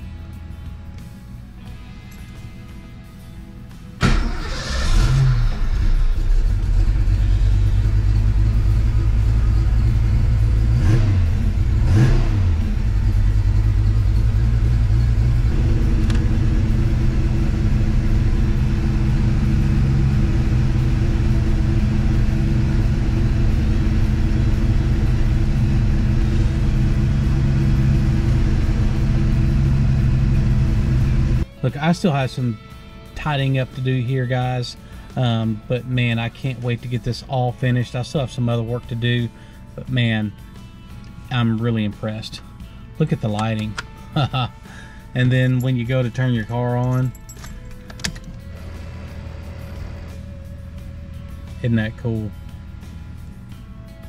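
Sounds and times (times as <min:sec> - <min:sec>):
car engine revving and idling: 0:04.0 - 0:31.5, 0:48.2 - 0:54.0.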